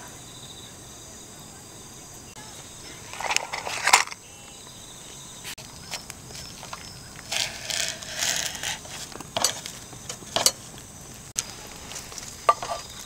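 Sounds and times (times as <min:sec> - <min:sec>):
insects trilling: 0:00.0 - 0:13.0
utensils clattering against mug: 0:07.3 - 0:10.6, 0:12.4 - 0:12.9.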